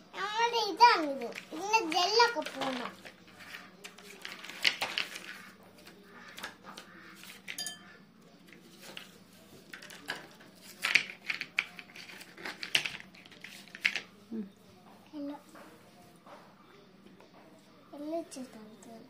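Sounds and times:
capsules clinking in a bowl: 0:07.5 - 0:08.0.

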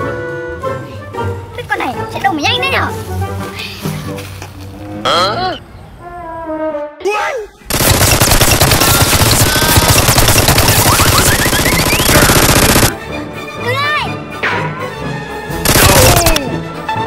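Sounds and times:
rapid automatic gunfire: 0:07.7 - 0:13.0, 0:15.6 - 0:16.4
swooping pitched sounds: 0:08.8 - 0:12.9.

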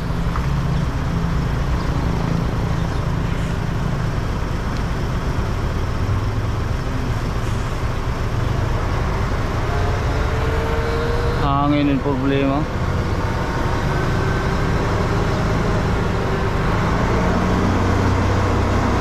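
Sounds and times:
diesel truck engine idling: 0:00.0 - 0:19.0.

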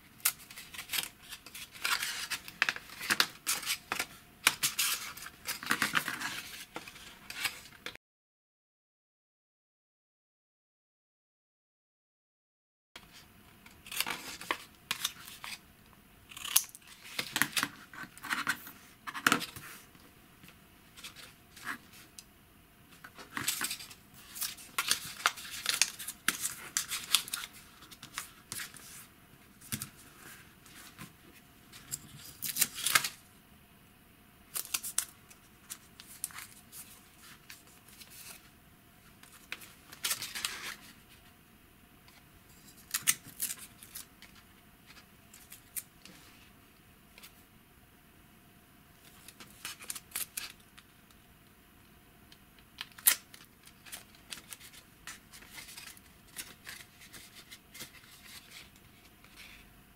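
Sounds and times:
paper rustling: 0:53.0 - 0:59.6.

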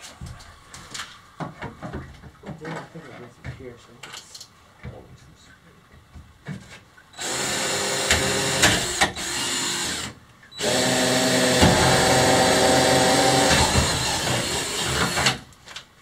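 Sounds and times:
cordless drill running: 0:07.2 - 0:15.4.

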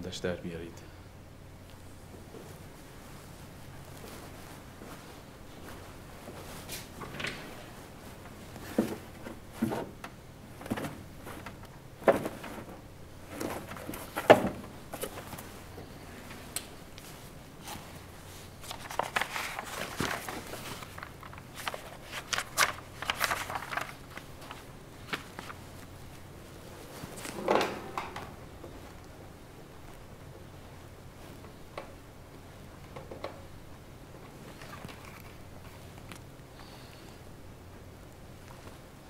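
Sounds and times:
papers rustling and flipping: 0:03.8 - 0:29.2, 0:34.3 - 0:36.3
wooden cabinet knocks and clicks: 0:27.3 - 0:28.4.

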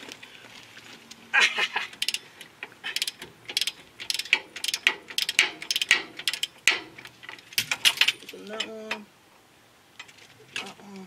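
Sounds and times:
socket ratchet clicking: 0:02.0 - 0:02.2, 0:02.9 - 0:08.1.

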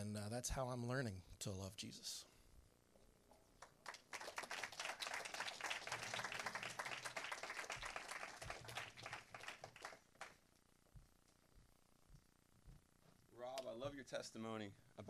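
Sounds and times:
crowd applauding: 0:03.6 - 0:10.4.

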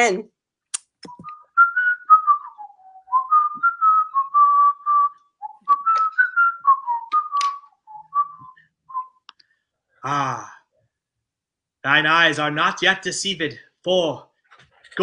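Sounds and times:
person whistling a tune: 0:01.1 - 0:09.3.

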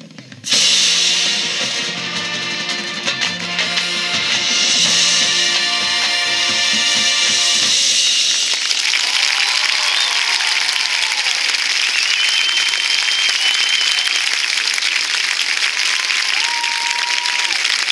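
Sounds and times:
crowd applauding and cheering: 0:00.5 - 0:17.9
whistles: 0:08.4 - 0:14.5.

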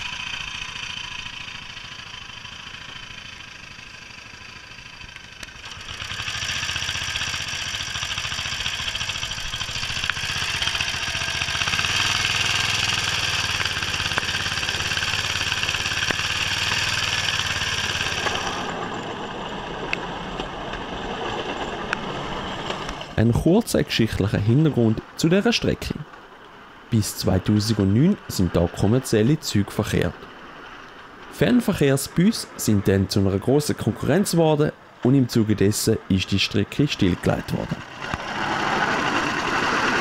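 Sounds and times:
small engine running: 0:00.0 - 0:23.2, 0:36.8 - 0:40.0.

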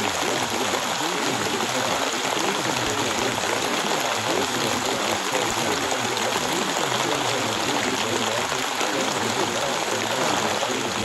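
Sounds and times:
steady rain: 0:00.0 - 0:11.0.

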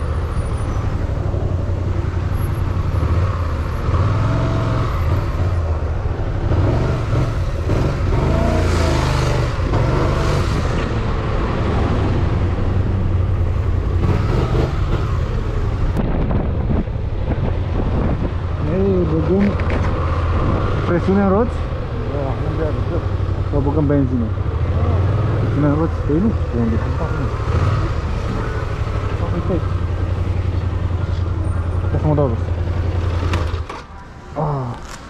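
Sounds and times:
motorcycle engine hum: 0:00.0 - 0:35.0
wind rushing over microphone: 0:14.8 - 0:22.0.

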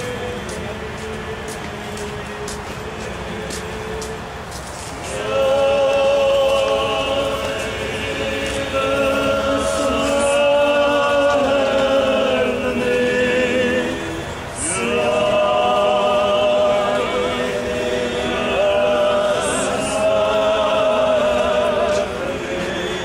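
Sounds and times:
male voices chanting a hymn: 0:00.0 - 0:23.0.

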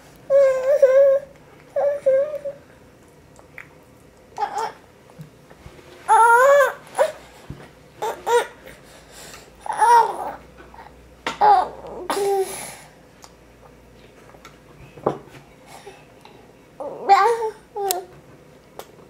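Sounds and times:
baby babbling: 0:00.3 - 0:02.6, 0:04.4 - 0:04.8, 0:06.1 - 0:07.2, 0:08.0 - 0:08.6, 0:09.6 - 0:12.5, 0:16.8 - 0:18.1.

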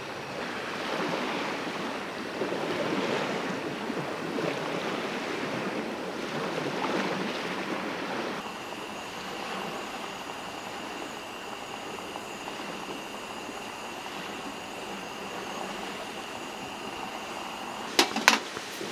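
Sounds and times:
faint high whine: 0:00.0 - 0:18.9
waves: 0:00.0 - 0:18.9
wind: 0:00.0 - 0:18.9
even hiss: 0:08.4 - 0:18.9.

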